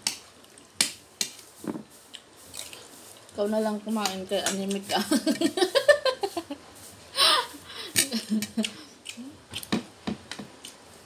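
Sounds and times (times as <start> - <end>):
woman laughing: 4.9 - 6.6, 7.2 - 8.9.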